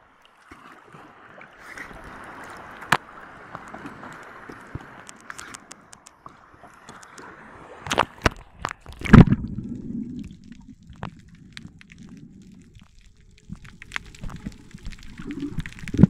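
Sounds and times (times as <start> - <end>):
water lapping and splashing: 0.0 - 16.0
faint clicks: 2.4 - 9.3, 10.2 - 16.0
muffled underwater rumble: 8.4 - 16.0.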